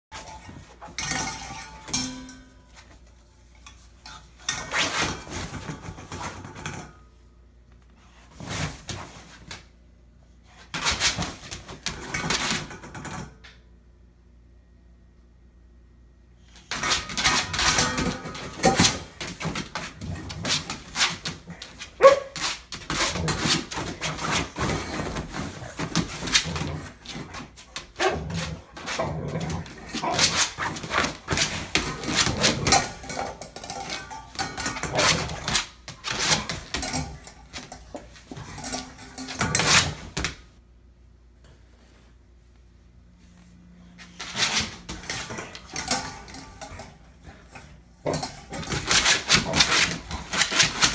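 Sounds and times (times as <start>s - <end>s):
dog scratching and rattling crate: 16.7s - 40.2s, 48.0s - 50.9s.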